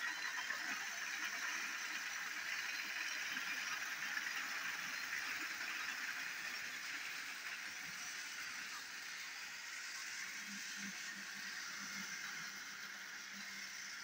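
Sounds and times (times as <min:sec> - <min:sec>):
toy train motor running: 0:00.0 - 0:14.0.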